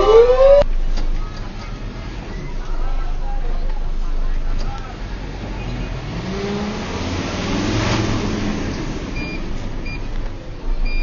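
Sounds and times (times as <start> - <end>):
truck engine speeding up: 0.0 - 0.9, 4.8 - 10.2.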